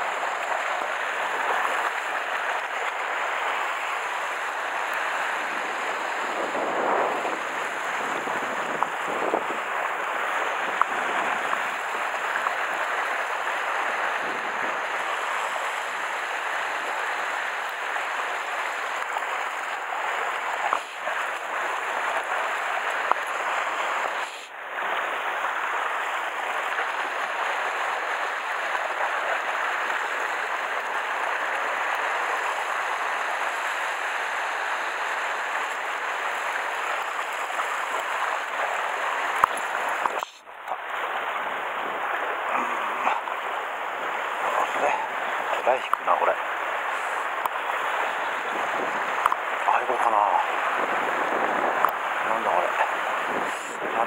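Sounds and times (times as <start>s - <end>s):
sea water lapping on rocks: 0.0s - 54.0s.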